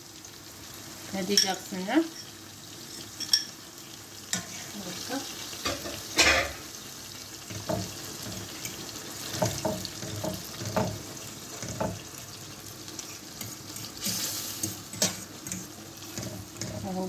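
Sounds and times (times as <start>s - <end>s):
food sizzling in oil: 0.0s - 17.0s
utensil stirring: 12.9s - 17.0s.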